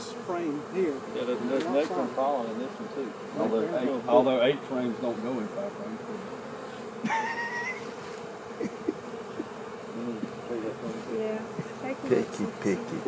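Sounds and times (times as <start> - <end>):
honey bees buzzing: 0.0 - 13.0.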